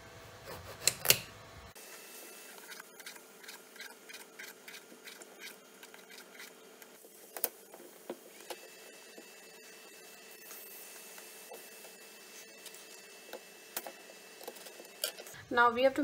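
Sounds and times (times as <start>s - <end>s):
vegetable peeler scraping: 2.4s - 7.6s.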